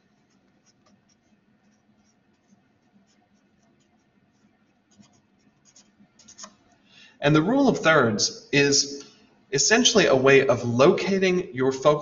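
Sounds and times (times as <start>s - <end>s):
marker writing on paper: 0.0s - 6.8s.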